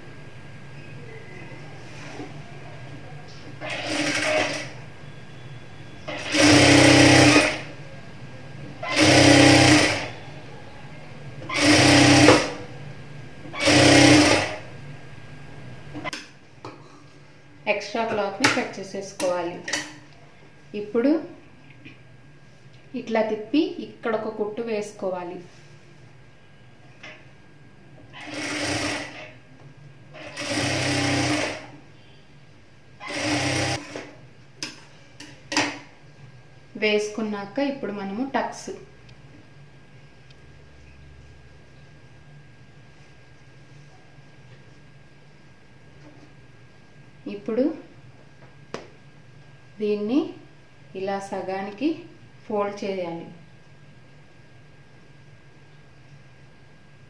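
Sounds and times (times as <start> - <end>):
faint steady hum: 0.0 - 57.0
sewing machine stitching: 3.6 - 4.8, 6.1 - 7.7, 8.8 - 10.2, 11.5 - 12.6, 13.6 - 14.6, 28.2 - 29.4, 30.2 - 31.7, 33.0 - 34.1.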